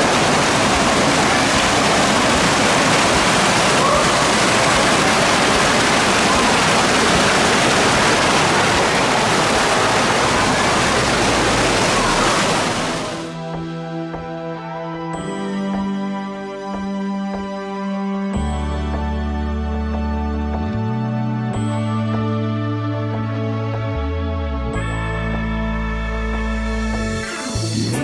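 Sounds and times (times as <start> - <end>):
creek rushing over rocks: 0.0 - 13.4
soft music: 13.2 - 28.0.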